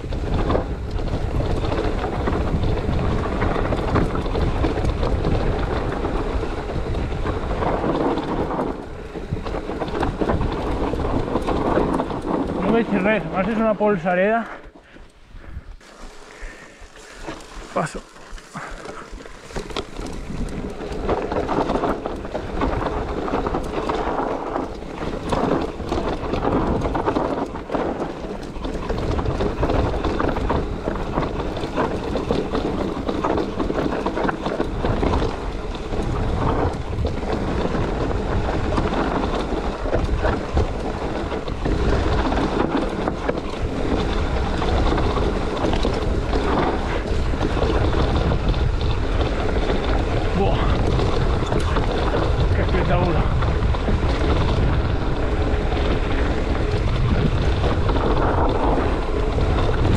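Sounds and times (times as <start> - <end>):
bike rattling over bumps: 0.0 - 59.9
wind buffeting microphone: 0.0 - 59.9
tyres crunching over dirt and stones: 15.8 - 59.9.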